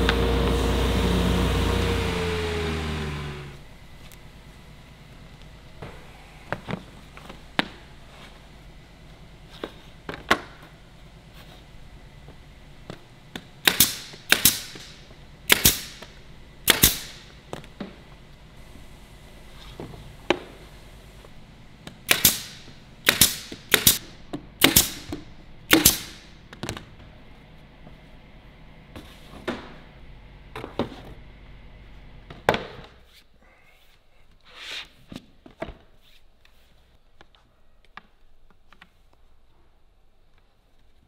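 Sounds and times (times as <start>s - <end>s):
nail gun shots: 13.6s - 17.3s, 22.1s - 26.3s.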